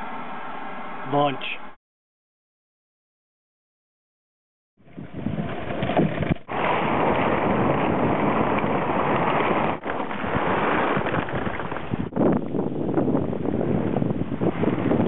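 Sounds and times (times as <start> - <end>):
wind buffeting microphone: 4.8 - 15.0.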